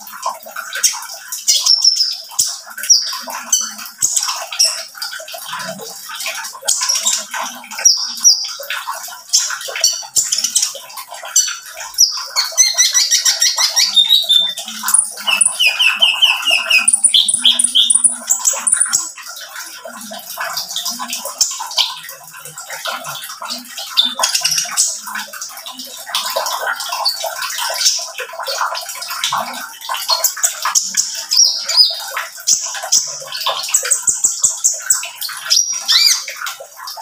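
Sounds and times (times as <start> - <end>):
sunbird singing chirps and trills: 12.0 - 19.1.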